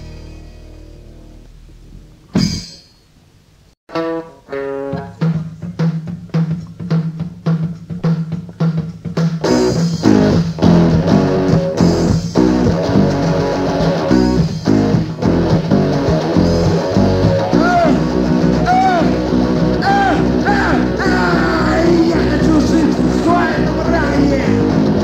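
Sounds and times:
electric guitar and bass riff: 0:00.0 - 0:02.5, 0:03.9 - 0:05.7, 0:09.4 - 0:25.0
rock band playing: 0:00.0 - 0:02.7, 0:03.9 - 0:25.0
drum hits: 0:02.3 - 0:02.9.

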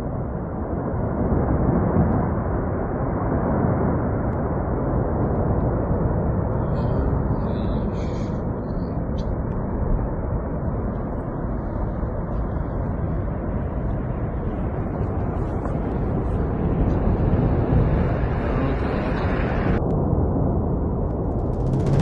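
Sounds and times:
avalanche rumbling: 0:21.2 - 0:22.0.

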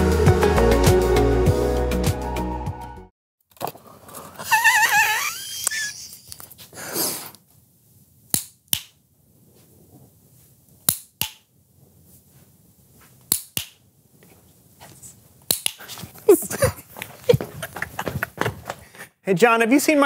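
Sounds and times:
sharp snaps in pairs: 0:08.3 - 0:09.0, 0:10.9 - 0:11.5, 0:13.3 - 0:13.8, 0:15.5 - 0:15.9.

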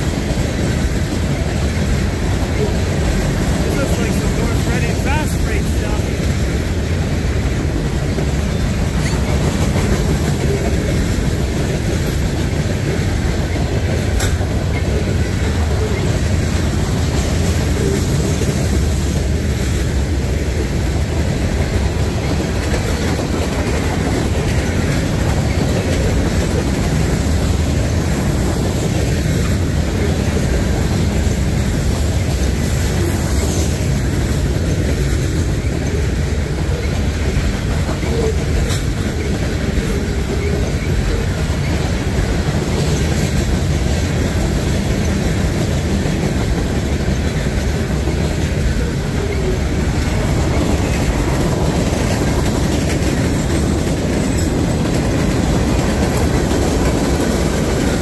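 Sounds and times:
train wheels on rail: 0:00.0 - 0:58.0.

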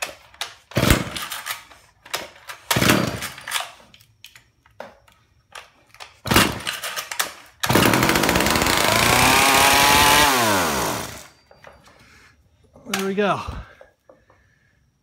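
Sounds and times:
chainsaw starter pulls: 0:06.3 - 0:11.4
chainsaw engine running and revving: 0:07.7 - 0:11.3.

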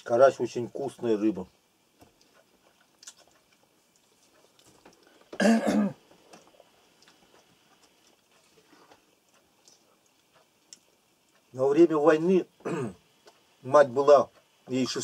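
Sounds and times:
man coughing: 0:05.4 - 0:06.0, 0:12.6 - 0:13.0.

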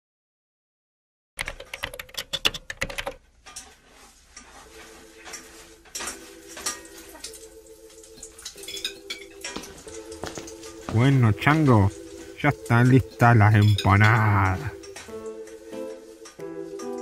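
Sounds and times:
clinks and scraping: 0:03.4 - 0:15.6
utensils and dishes clattering: 0:03.4 - 0:17.0.

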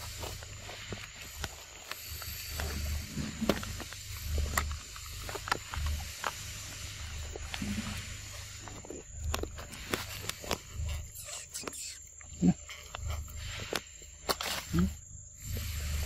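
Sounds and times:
low rumble: 0:00.0 - 0:11.2
sharp crackles and rustles: 0:00.0 - 0:16.0
steady high hiss: 0:00.0 - 0:16.0.

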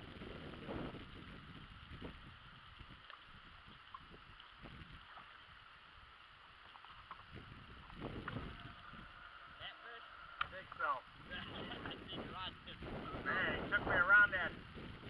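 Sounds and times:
rustle: 0:00.0 - 0:13.2
water lapping against boat: 0:00.7 - 0:12.2
light ticks: 0:03.0 - 0:04.5.

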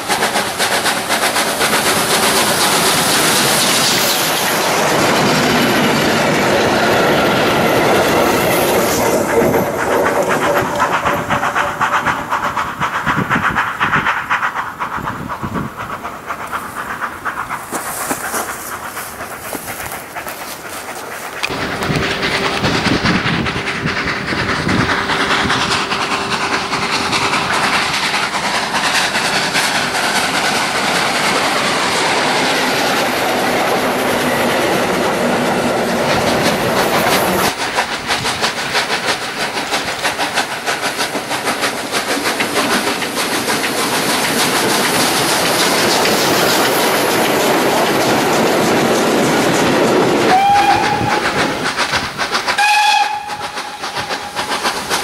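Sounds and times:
model train wheels clacking on rails: 0:00.0 - 0:55.0
train whistle: 0:50.3 - 0:51.4, 0:52.6 - 0:54.4.

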